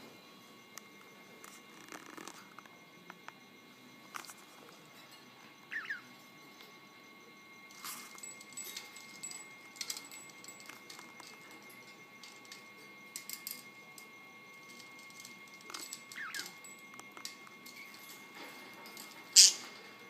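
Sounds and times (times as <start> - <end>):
clicks and rattles of cage toys: 7.7 - 20.0.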